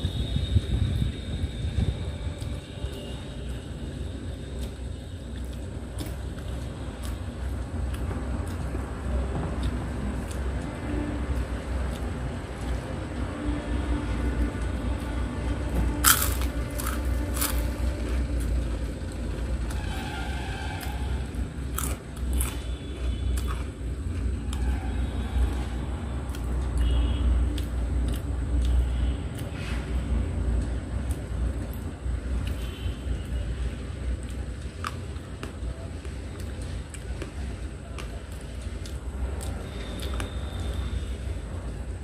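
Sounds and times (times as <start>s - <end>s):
steady low rumble: 0.0s - 39.8s
crackers crunching: 15.8s - 19.8s, 20.8s - 24.6s.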